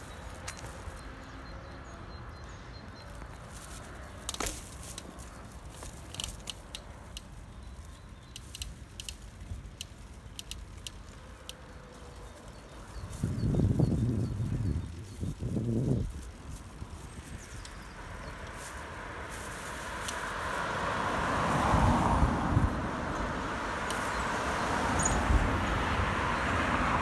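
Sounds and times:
footsteps on pavement: 0.0s - 22.5s.

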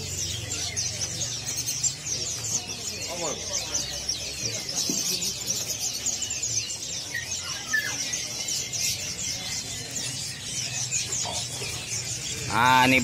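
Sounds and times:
birds chirping and twittering: 0.0s - 13.0s.

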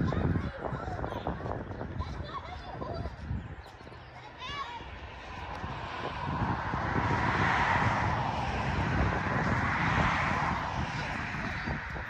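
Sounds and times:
aircraft passing overhead: 3.8s - 12.0s.

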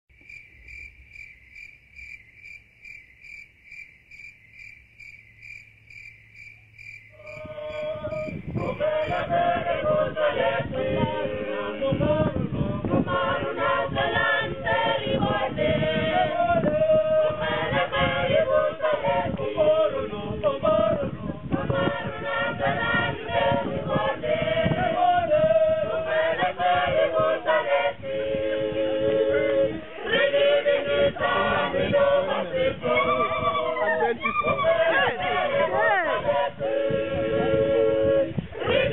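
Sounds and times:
insect chirping: 0.1s - 9.3s
group singing unaccompanied: 7.2s - 38.9s.

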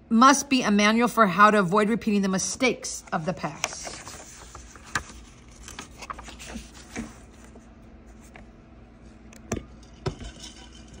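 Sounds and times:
paper pages rustling: 3.0s - 8.5s.

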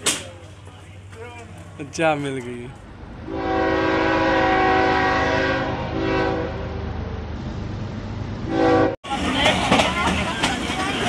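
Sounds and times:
train horn blowing: 3.3s - 6.9s, 8.5s - 9.0s.

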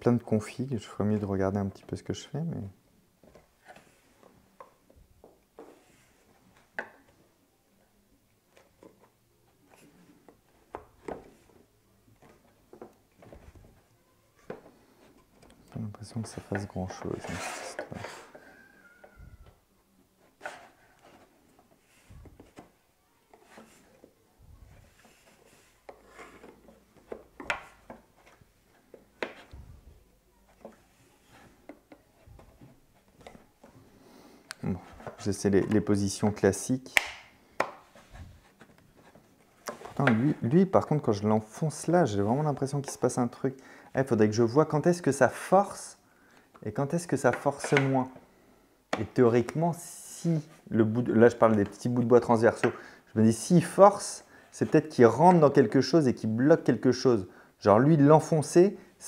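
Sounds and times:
wooden puzzle box clicks and knocks: 25.9s - 29.5s, 37.0s - 37.9s, 38.6s - 40.4s.

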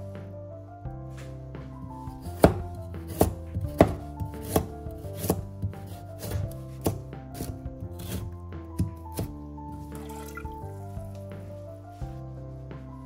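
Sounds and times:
soft background music: 0.0s - 13.0s
knife chopping on wooden board: 2.2s - 9.4s.

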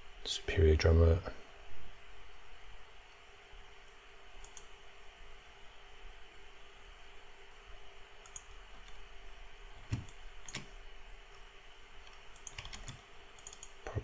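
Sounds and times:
faint steady hum: 0.0s - 14.0s
computer mouse clicks: 3.8s - 4.7s, 8.2s - 9.0s, 9.8s - 10.7s, 11.3s - 14.0s.

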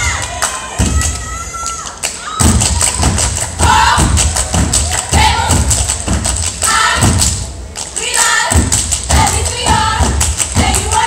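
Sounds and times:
audience cheering: 0.0s - 5.6s
people clapping in unison: 0.0s - 11.0s.

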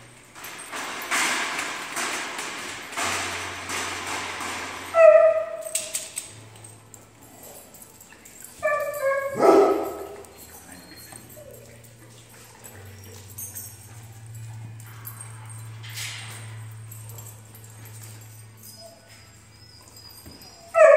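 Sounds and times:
dog barking: 8.8s - 10.3s.

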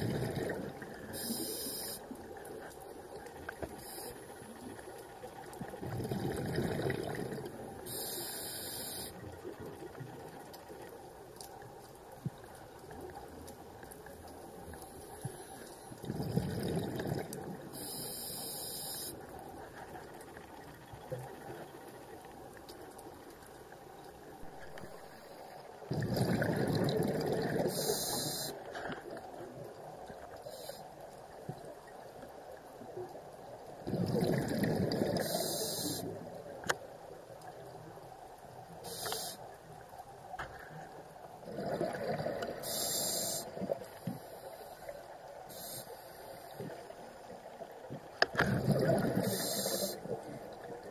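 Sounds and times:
exhaled bubbles rushing underwater: 0.0s - 1.4s, 5.6s - 8.0s, 16.0s - 18.0s, 25.9s - 28.5s, 33.8s - 36.2s, 41.4s - 44.3s, 48.3s - 50.9s
high regulator hiss: 1.2s - 2.0s, 7.9s - 9.1s, 42.7s - 43.4s.

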